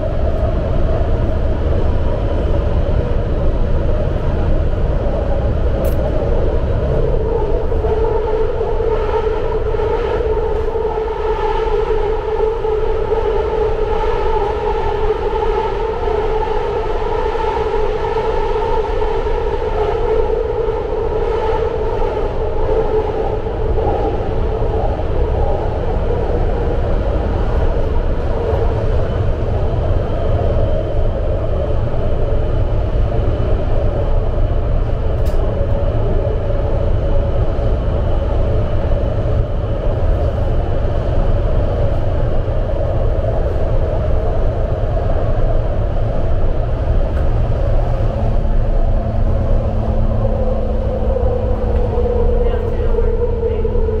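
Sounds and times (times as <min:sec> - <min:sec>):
train wheels rumbling on rail: 0:00.0 - 0:54.0
low hum: 0:23.1 - 0:54.0.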